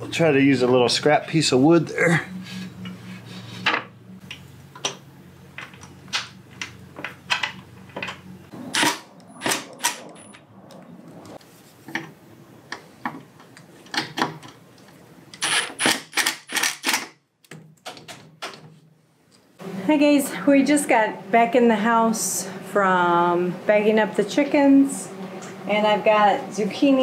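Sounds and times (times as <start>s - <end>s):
low steady hum: 0.0s - 15.4s
wood and metal clicks and knocks: 12.7s - 15.0s, 15.8s - 18.8s.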